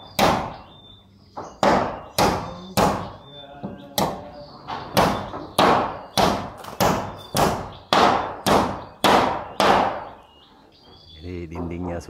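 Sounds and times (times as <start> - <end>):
hammer driving nails into wood: 1.6 - 3.1, 4.8 - 10.2.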